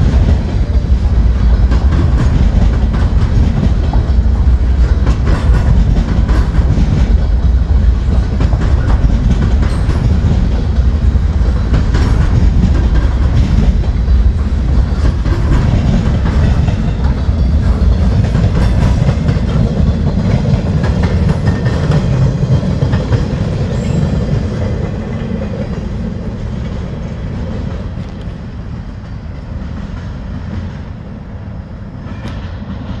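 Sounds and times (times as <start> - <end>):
freight train rolling past: 0.0 - 33.0.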